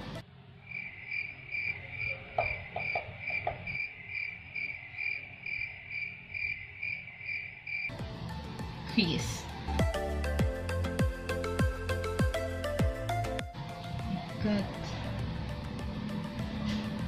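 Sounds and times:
cricket chirping: 0:00.6 - 0:07.9.

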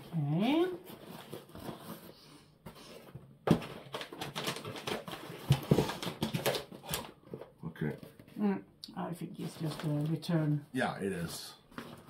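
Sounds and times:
packaging rustling and clicking: 0:02.9 - 0:08.3.

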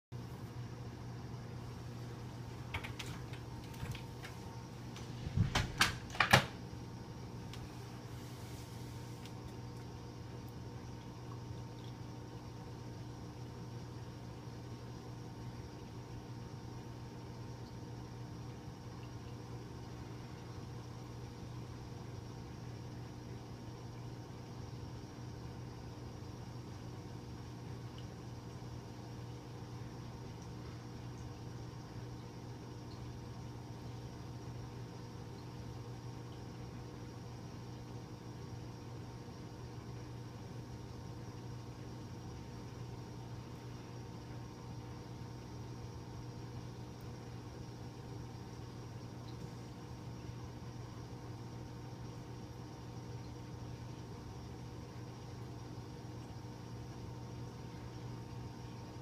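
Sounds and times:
aquarium equipment hum: 0:00.1 - 0:59.0
faint even hiss: 0:07.3 - 0:09.9.

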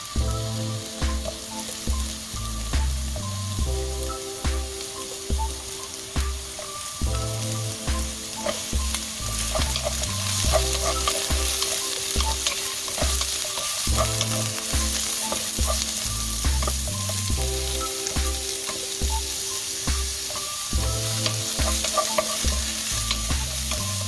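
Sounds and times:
vegetables sizzling in a wok: 0:00.0 - 0:24.0
backing track with bass line: 0:00.1 - 0:24.0
wooden spatula scraping wok: 0:06.2 - 0:24.0.

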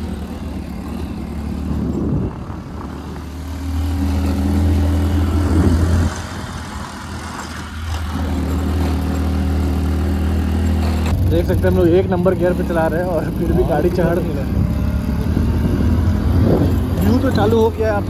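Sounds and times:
vehicle engine pulling hard: 0:00.0 - 0:18.0.

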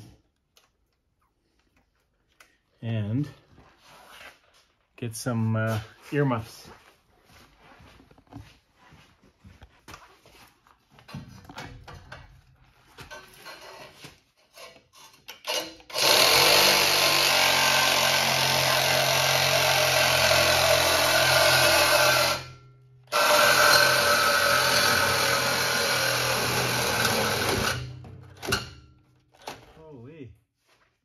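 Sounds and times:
reciprocating saw cutting metal pipe: 0:14.5 - 0:28.8.

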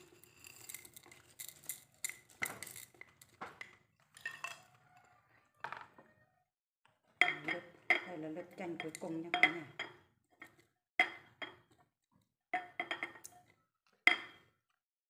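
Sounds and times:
rock sugar clinking on glass: 0:00.0 - 0:03.0, 0:04.2 - 0:04.7.

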